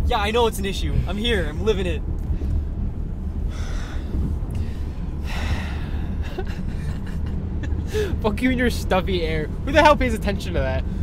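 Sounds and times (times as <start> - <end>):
car cabin road rumble: 0.0 - 11.0
person breathing heavily: 2.3 - 6.9, 7.8 - 8.2.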